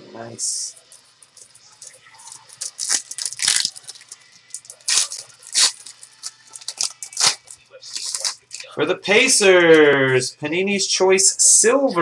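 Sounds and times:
trading cards rustling: 0.8 - 8.7.

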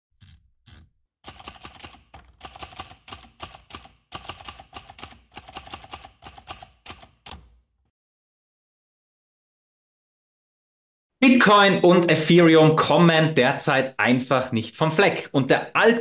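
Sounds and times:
typewriter keys clacking: 0.2 - 7.5.

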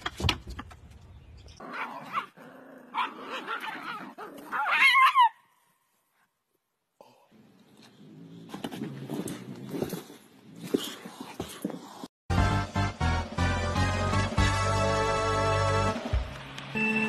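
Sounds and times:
dog yipping and barking: 1.7 - 5.4.

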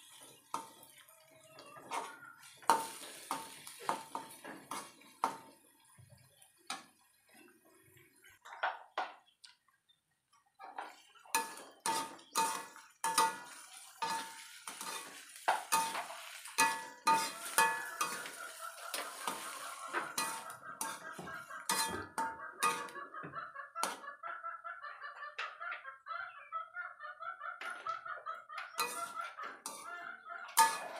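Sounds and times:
spatula scraping metal wok: 1.9 - 5.4, 11.3 - 23.0, 28.7 - 29.9, 30.6 - 30.9
wok ringing: 11.3 - 23.0, 28.8 - 29.8, 30.6 - 30.9.

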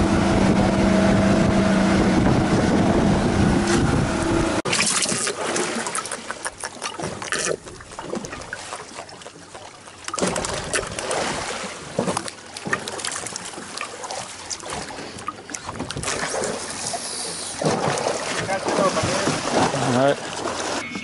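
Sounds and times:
water slapping against boat hull: 4.6 - 20.8.

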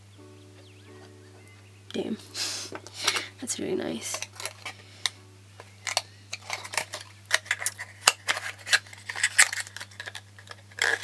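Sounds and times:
thin card rustling: 5.6 - 11.0.

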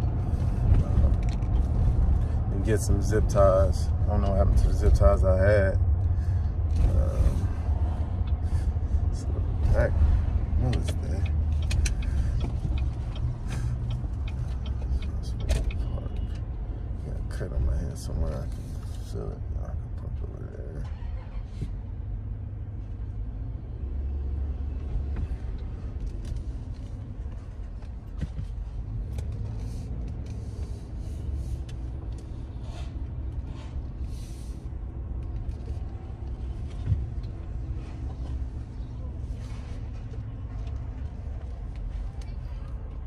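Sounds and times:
car engine and tyres rumbling: 0.0 - 43.0.

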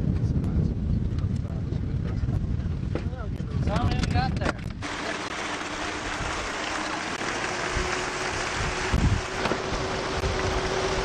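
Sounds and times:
wind on microphone: 0.0 - 5.0, 5.9 - 6.6, 7.5 - 11.0
faint motor hum: 4.8 - 11.0
rushing water: 4.8 - 11.0.

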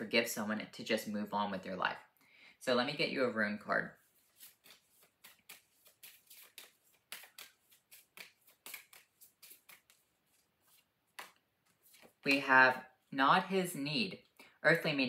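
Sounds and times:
cards being shuffled: 4.0 - 12.6.

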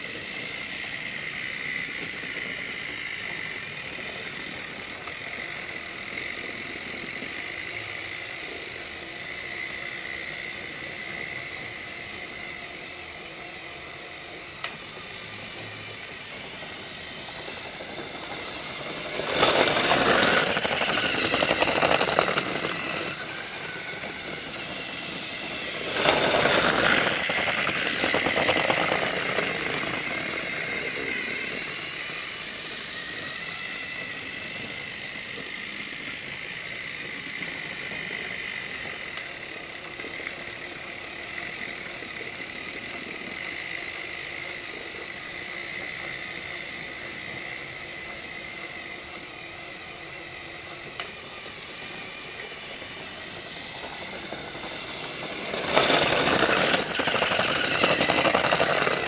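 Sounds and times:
toy train motor whirring: 0.0 - 59.0.

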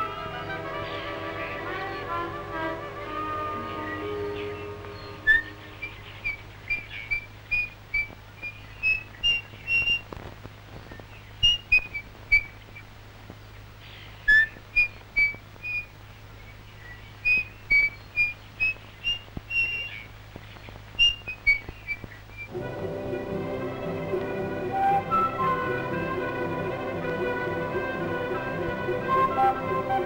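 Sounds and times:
faint low hum: 0.0 - 30.0
person whistling a tune: 24.7 - 26.1.

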